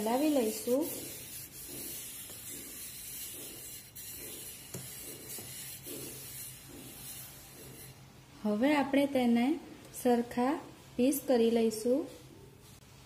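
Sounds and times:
metal bowl rubbing on mixture: 0.0s - 8.6s.

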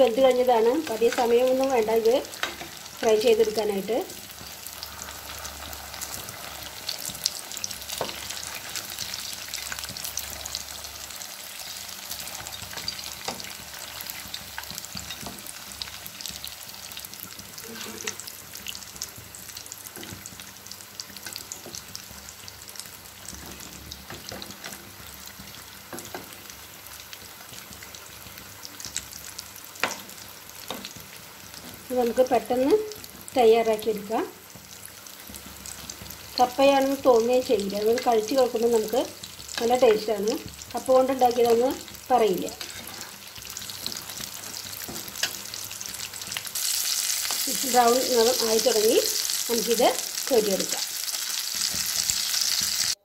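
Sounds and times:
food deep-frying in hot oil: 0.0s - 53.0s.

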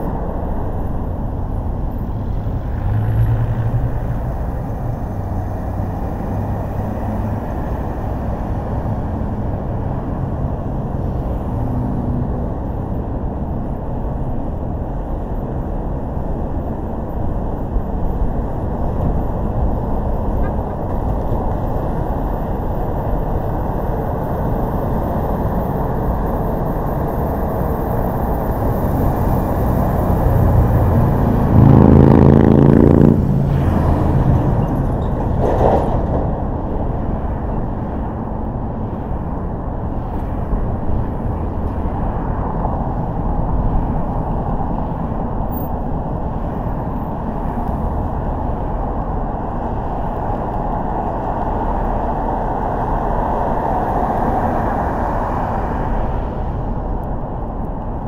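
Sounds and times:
car driving road rumble: 0.0s - 58.0s
loud vehicle engine revving: 28.8s - 35.0s.

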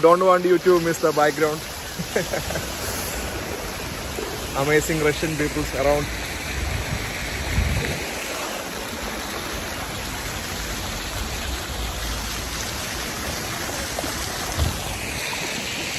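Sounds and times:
fountain water splashing: 0.0s - 15.9s.

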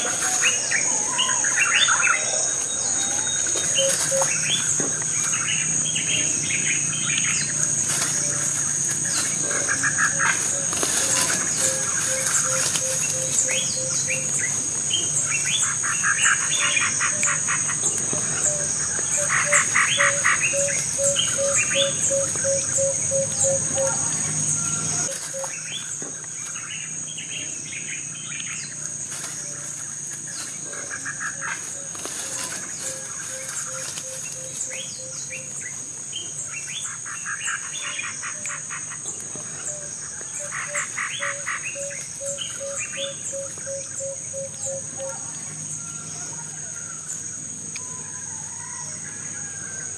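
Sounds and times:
high-pitched insect drone: 0.0s - 38.8s
birds trilling: 0.0s - 49.9s.

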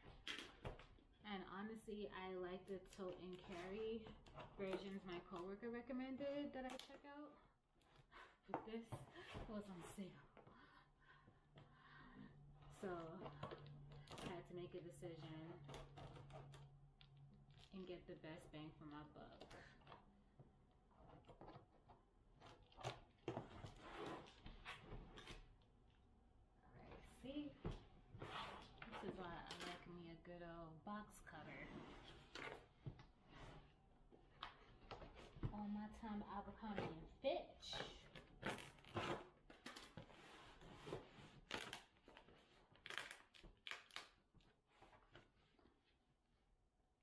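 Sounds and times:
tape and cardboard rustling: 2.7s - 7.0s, 12.6s - 18.4s, 20.9s - 25.6s, 31.2s - 45.7s.

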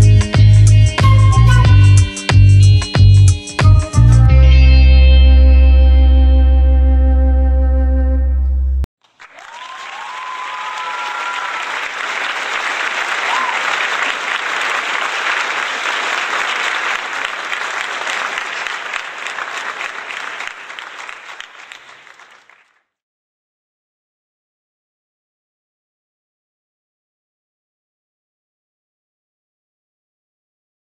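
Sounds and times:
whistles from crowd: 1.0s - 2.2s, 9.2s - 14.2s
crowd clapping and cheering: 9.0s - 22.8s.

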